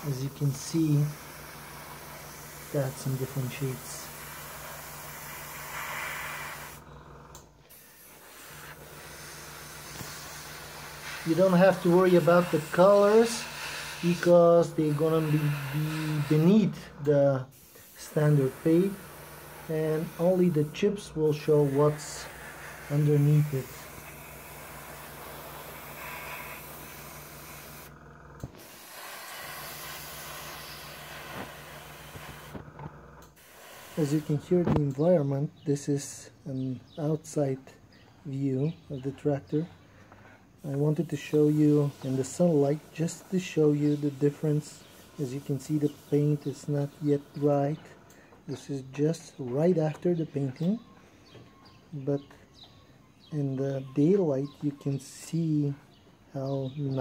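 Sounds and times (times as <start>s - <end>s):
louder air hiss: 0.0s - 6.8s, 7.7s - 27.9s, 28.5s - 32.6s, 33.3s - 34.8s, 40.6s - 47.5s
airbrush compressor humming: 0.0s - 34.9s, 40.6s - 49.4s
constant hiss: 0.0s - 57.0s.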